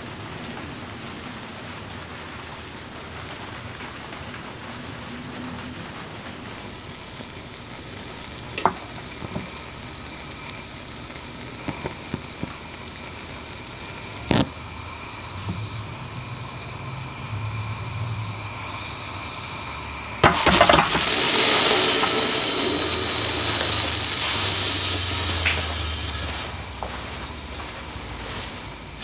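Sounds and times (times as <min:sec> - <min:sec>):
hiss: 0:00.0 - 0:29.0
stove burning rumble: 0:00.0 - 0:29.0
kettle clattering on stove: 0:08.5 - 0:09.7.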